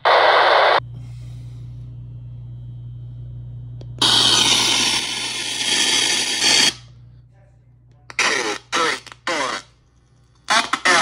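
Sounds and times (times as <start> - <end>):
radio static hiss: 0.0 - 0.8, 8.1 - 9.7, 10.5 - 11.0
low hum: 0.1 - 10.7.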